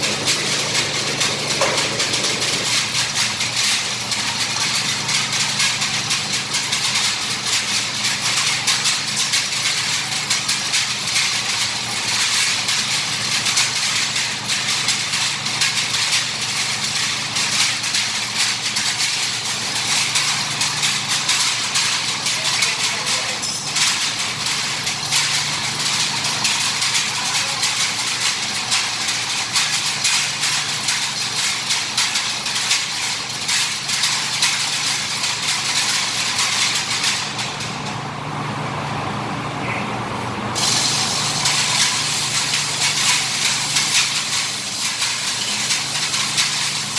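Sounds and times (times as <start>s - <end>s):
machine humming and hissing: 0.0s - 6.0s, 32.4s - 46.9s.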